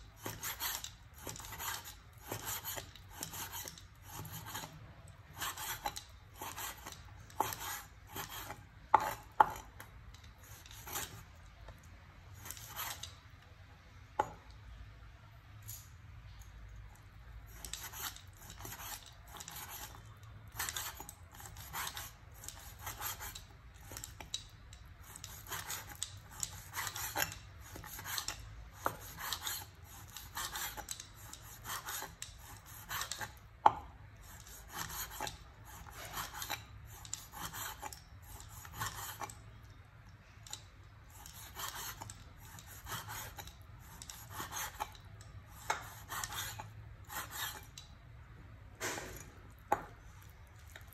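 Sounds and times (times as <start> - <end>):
cleaver slicing meat on a board: 0.2 - 4.8, 5.4 - 9.8, 25.0 - 39.3.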